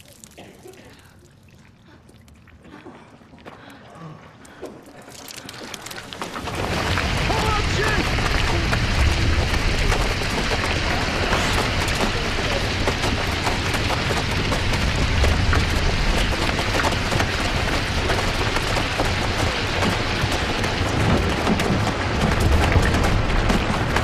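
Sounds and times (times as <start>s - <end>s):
rubble falling: 4.9s - 24.0s
steady low rumble: 6.0s - 24.0s.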